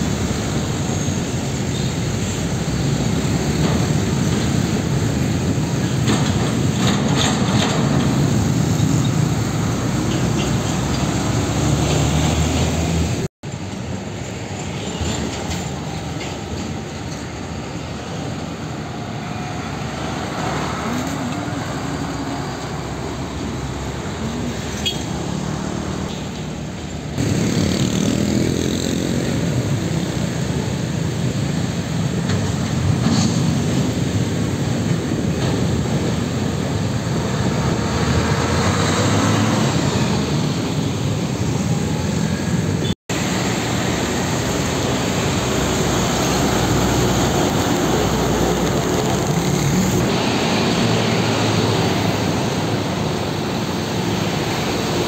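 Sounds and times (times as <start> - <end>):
diesel trucks driving past: 0.0 - 55.0
motorcycle engines: 0.0 - 55.0
road and tyre noise: 0.0 - 55.0.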